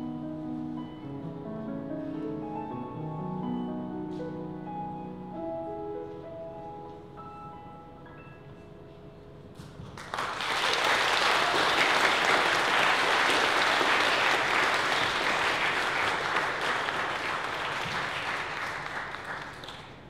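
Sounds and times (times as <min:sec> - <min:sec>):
audience applause: 0:10.0 - 0:20.0.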